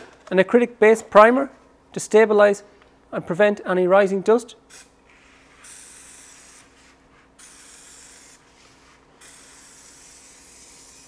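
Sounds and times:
aerosol can spraying: 0:05.6 - 0:11.0.

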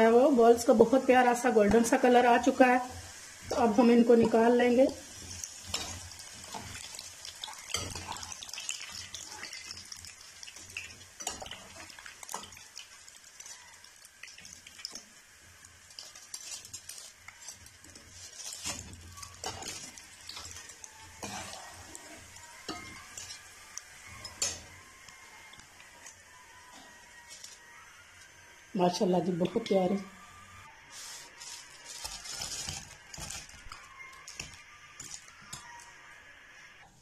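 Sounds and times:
hot oil sizzling in a pan: 0:00.1 - 0:26.3.

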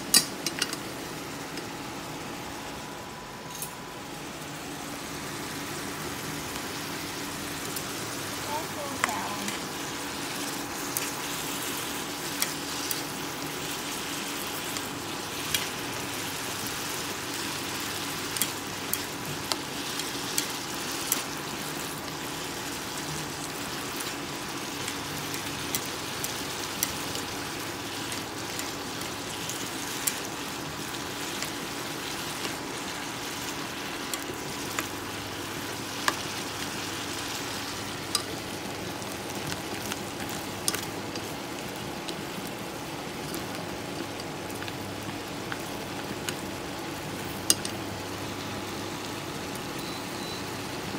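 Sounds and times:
vegetables sizzling in a pan: 0:00.0 - 0:03.0, 0:04.0 - 0:50.9
chopsticks stirring with pops: 0:07.7 - 0:47.8.

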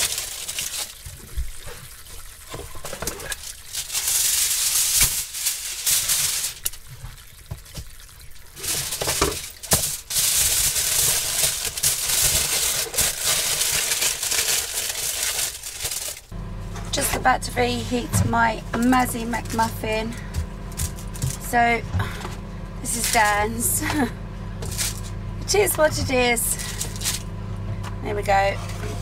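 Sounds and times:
aluminium foil crinkling: 0:00.0 - 0:07.4, 0:08.5 - 0:17.0, 0:18.8 - 0:21.6, 0:22.8 - 0:27.3
water bubbling in a pan: 0:00.5 - 0:04.0, 0:06.4 - 0:10.1.

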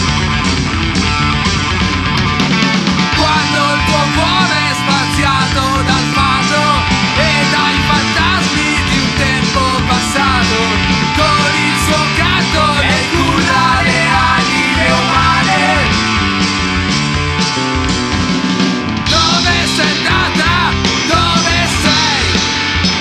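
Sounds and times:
electric guitar with pitch bends: 0:00.0 - 0:23.0
hard rock band playing: 0:00.0 - 0:23.0.

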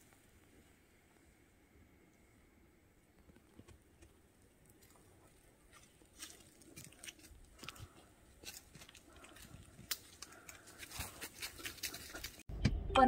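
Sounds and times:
dry leaves crackling underfoot: 0:04.7 - 0:12.4.

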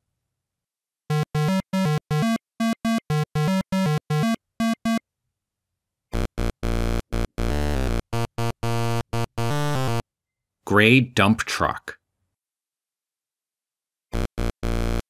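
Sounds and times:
chiptune synthesizer music: 0:01.1 - 0:05.0, 0:06.2 - 0:10.0, 0:14.3 - 0:15.0.

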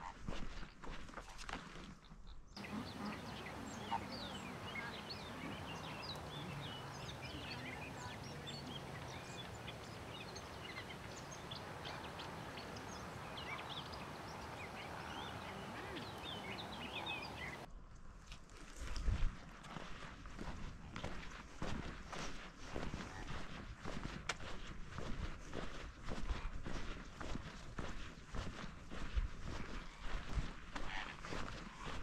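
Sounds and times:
water birds calling: 0:02.0 - 0:17.7, 0:29.4 - 0:32.0
low honking chatter: 0:02.6 - 0:17.7.

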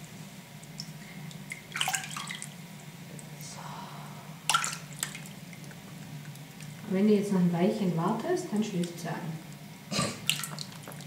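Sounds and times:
steady low hum: 0:00.0 - 0:11.0
water splashing in basin: 0:00.8 - 0:02.6, 0:04.5 - 0:05.8, 0:10.2 - 0:11.0.

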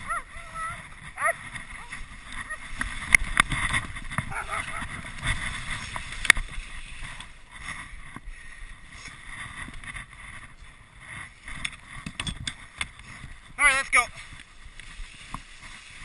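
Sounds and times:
sled frame rattling: 0:00.0 - 0:16.0
sled runners hissing on snow: 0:03.8 - 0:10.3, 0:14.2 - 0:16.0.

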